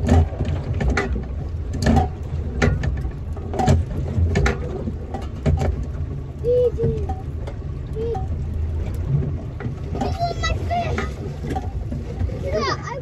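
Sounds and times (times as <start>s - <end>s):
sharp knocks and clicks: 0.0s - 6.0s
outboard motor running: 0.0s - 13.0s.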